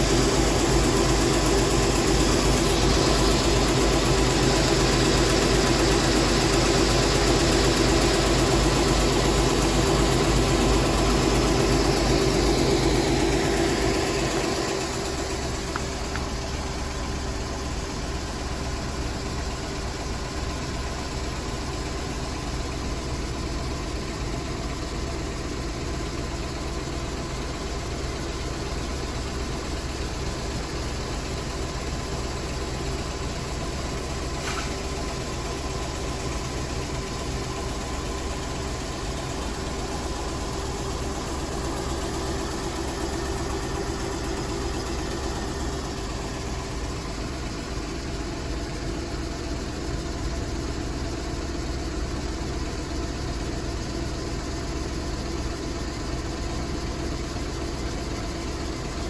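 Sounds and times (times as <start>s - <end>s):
machine droning: 0.0s - 19.8s.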